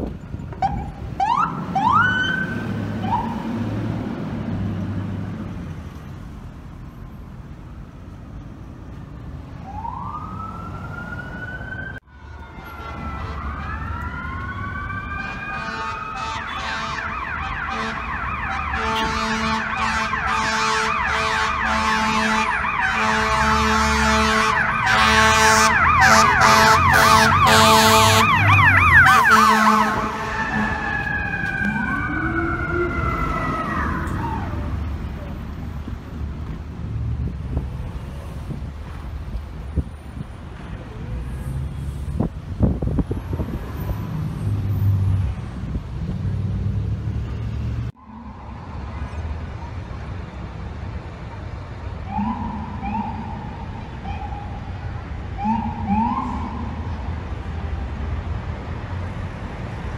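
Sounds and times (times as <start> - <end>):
air horn tones: 17.7 - 28.4, 29.0 - 30.8
rising electronic siren sweeps: 24.3 - 34.9, 48.0 - 49.2, 52.0 - 54.7, 55.4 - 57.1
fast electronic siren yelp: 52.1 - 54.6.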